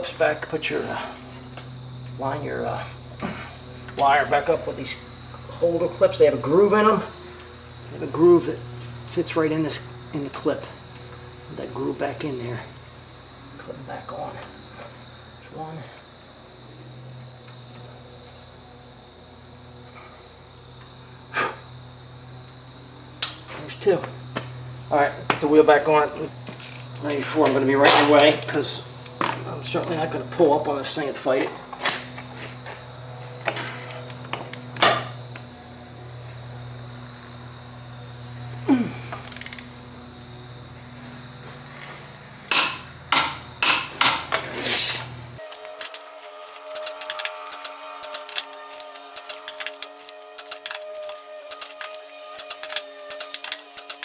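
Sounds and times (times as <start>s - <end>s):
hand ratchet clicking: 39.2s - 39.7s, 44.8s - 54.0s
high-pitched whine: 44.3s - 54.0s
rasping ratchet strokes: 44.5s - 54.0s.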